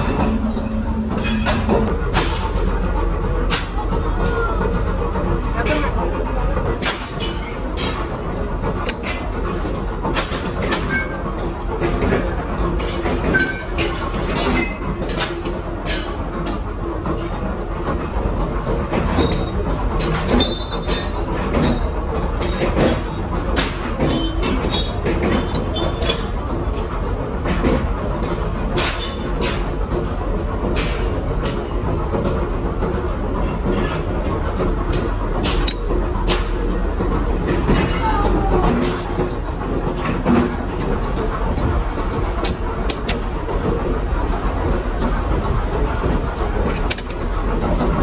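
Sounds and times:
machinery low rumble: 0:00.0 - 0:48.0
sharp clicks and knocks: 0:33.4 - 0:38.0, 0:38.6 - 0:44.0, 0:46.0 - 0:48.0.

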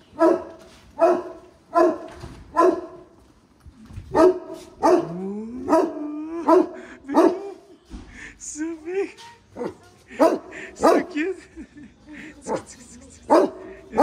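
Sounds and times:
dog barking: 0:00.1 - 0:03.1, 0:04.1 - 0:07.6, 0:09.6 - 0:11.2, 0:13.3 - 0:14.0.

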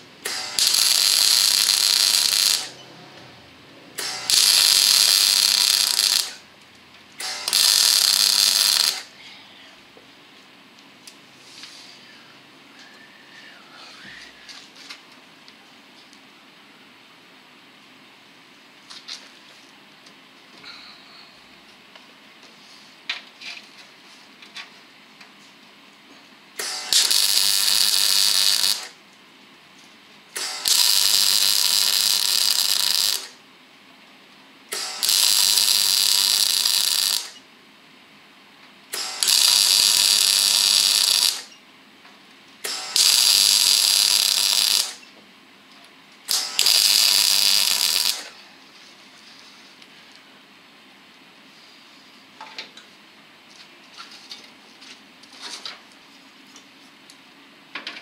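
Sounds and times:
arc welding crackling hiss: 0:00.0 - 0:02.8, 0:04.0 - 0:06.5, 0:07.2 - 0:09.2, 0:26.6 - 0:29.0, 0:30.3 - 0:33.4, 0:34.7 - 0:37.4, 0:38.9 - 0:41.6, 0:42.6 - 0:45.1, 0:46.2 - 0:48.4.

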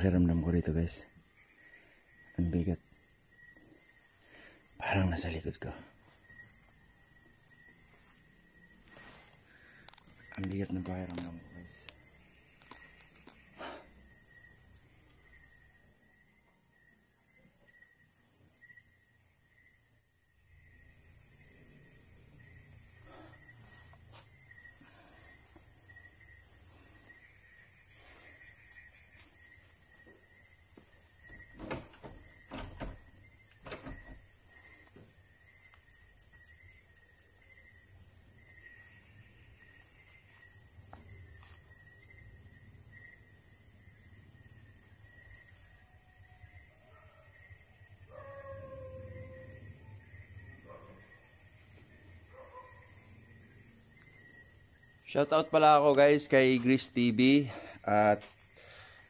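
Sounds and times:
insect trill: 0:00.0 - 0:59.0
low insect chirp: 0:00.0 - 0:59.0
brief knocks: 0:31.3 - 0:34.2.

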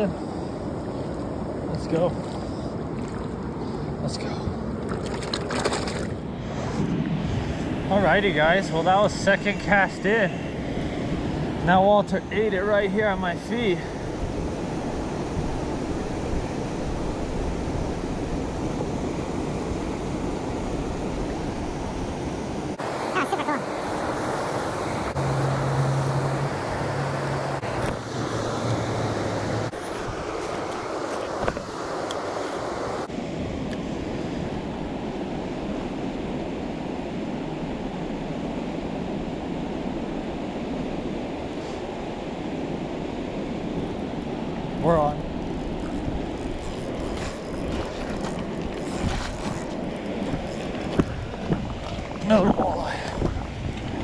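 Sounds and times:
river water rushing over rapids: 0:22.7 - 0:33.1.

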